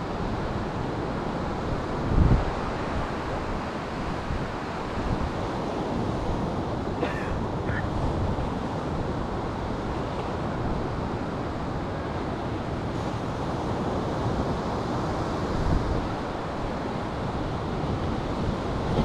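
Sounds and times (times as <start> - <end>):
wind buffeting microphone: 0.0 - 6.8
ocean surf: 0.0 - 19.0.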